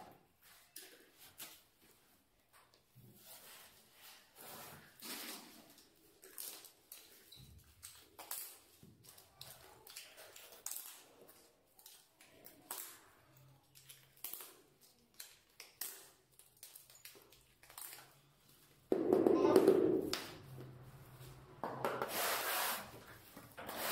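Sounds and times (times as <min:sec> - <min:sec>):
plastic clips clicking on tiles: 0:07.8 - 0:18.2.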